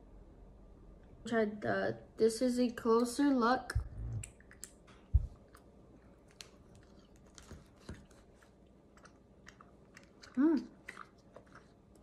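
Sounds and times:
wet mouth clicks: 0:03.7 - 0:05.7, 0:09.0 - 0:12.0
chewing fruit snacks: 0:04.2 - 0:12.0.

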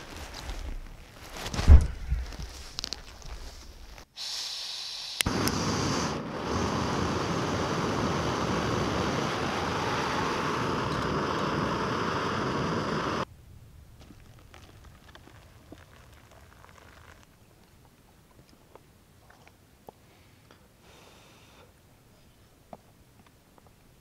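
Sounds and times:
gas burner hissing: 0:04.1 - 0:13.3.

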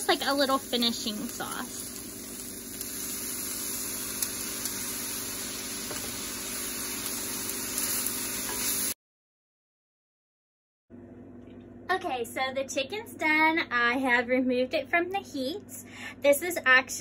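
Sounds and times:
chicken sizzling in frying pan: 0:00.0 - 0:09.0.

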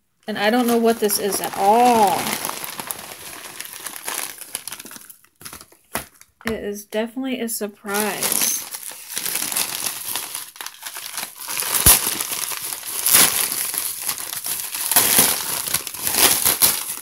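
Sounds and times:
bubble wrap crinkling: 0:00.3 - 0:06.4, 0:07.9 - 0:17.0
bubble wrap snap: 0:08.2 - 0:17.0.

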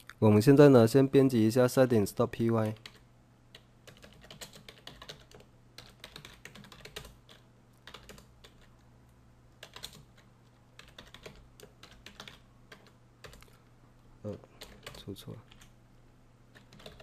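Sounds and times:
faint low hum: 0:00.0 - 0:17.0
computer keyboard typing: 0:02.6 - 0:08.8, 0:09.6 - 0:13.6, 0:14.6 - 0:15.7, 0:16.5 - 0:17.0.

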